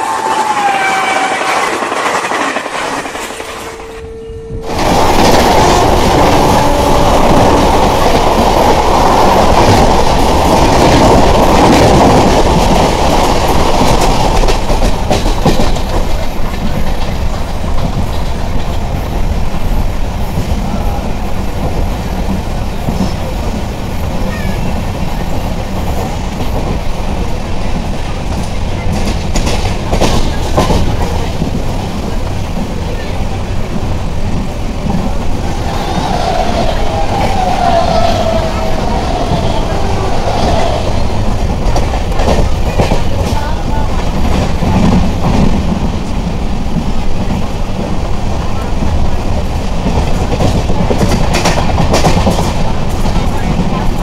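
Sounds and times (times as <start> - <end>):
train wheels on rails: 0.0 - 54.0
wind: 0.0 - 54.0.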